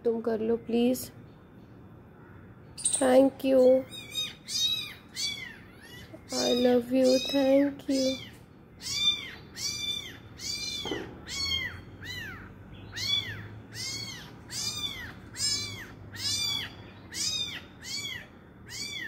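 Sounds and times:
kitten mewing: 8.2s - 19.0s.

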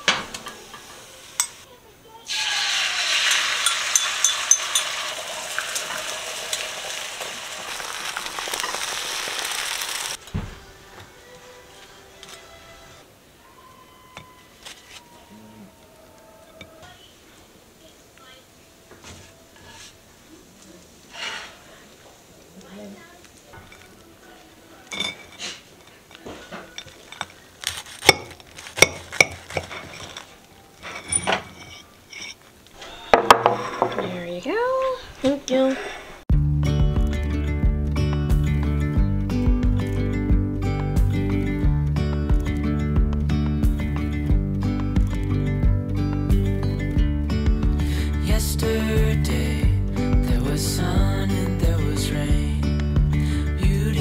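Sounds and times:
eggs sizzling in frying pan: 0.0s - 10.4s, 16.8s - 30.8s
spatula clinks: 3.3s - 5.0s
dishes clinking on stone: 3.3s - 5.9s, 24.8s - 27.4s, 28.1s - 32.4s, 33.0s - 34.3s.

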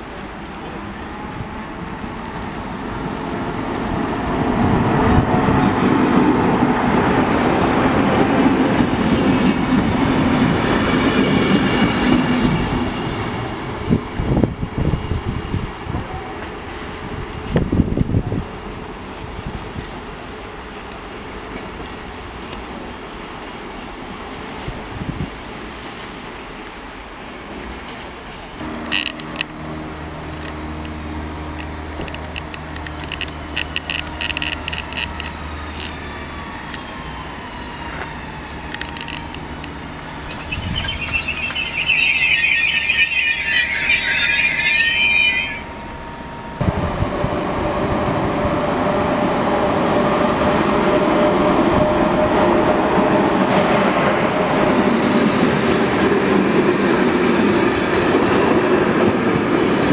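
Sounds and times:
freight train wheels rumbling: 0.0s - 59.9s
high-pitched train squealing: 8.8s - 13.4s, 33.0s - 46.6s
electric train falling tone: 38.4s - 47.3s.

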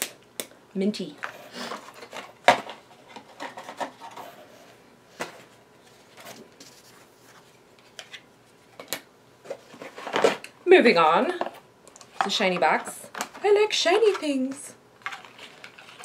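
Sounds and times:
packaging rubbing and rustling: 15.0s - 16.0s.

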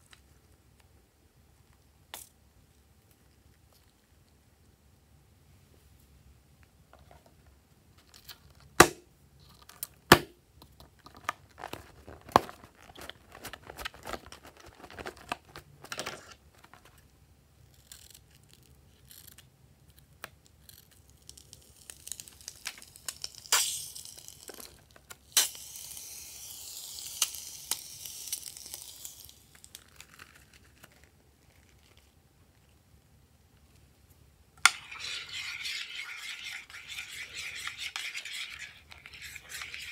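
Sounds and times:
slime squeezed with hiss: 22.9s - 24.4s, 25.3s - 29.6s.

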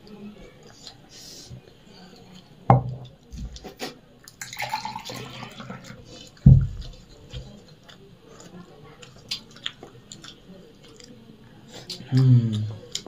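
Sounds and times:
dull knocks on table: 2.7s - 3.0s.

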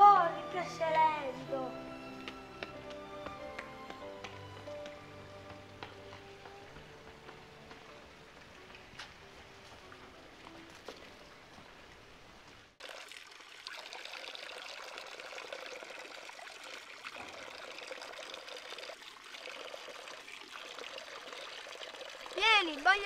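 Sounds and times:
fountain water pouring into basin: 12.8s - 23.0s.

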